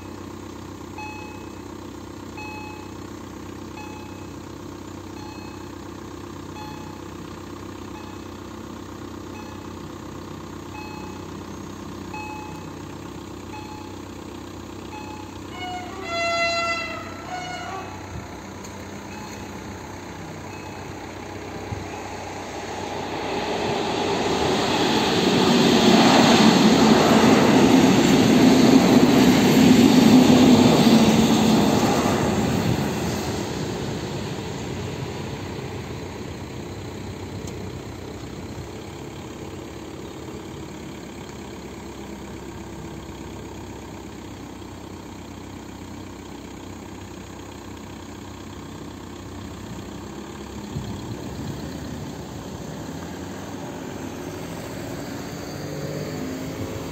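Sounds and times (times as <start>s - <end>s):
road traffic hum: 0.0s - 56.9s
passenger train passing: 14.8s - 40.7s, 50.4s - 56.9s.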